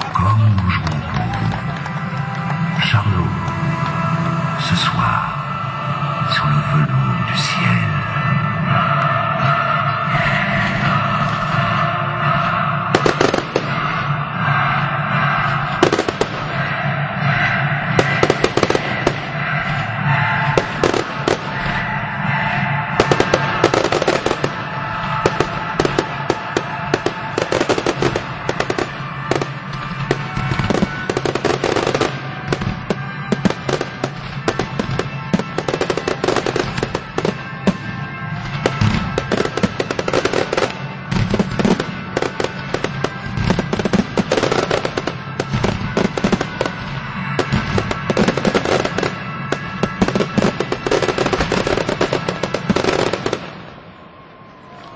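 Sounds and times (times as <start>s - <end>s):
fireworks bangs and crackling: 0.0s - 54.9s
music: 0.0s - 54.9s.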